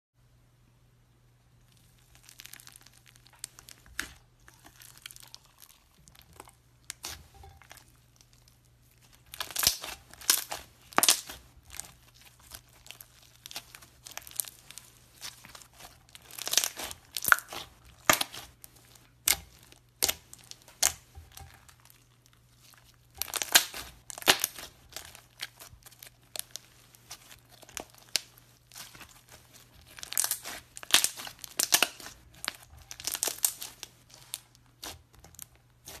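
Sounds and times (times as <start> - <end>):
slime crackling and popping: 1.6 - 36.0.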